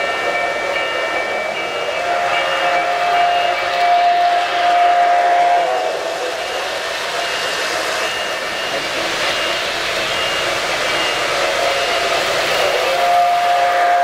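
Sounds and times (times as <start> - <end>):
model trains rumbling on metal track: 0.0 - 14.0
model train whistle chord: 0.1 - 6.7, 11.4 - 14.0.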